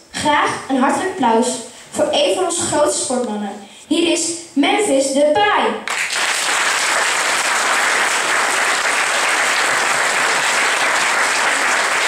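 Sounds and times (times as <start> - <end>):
audience applauding: 5.9 - 12.0.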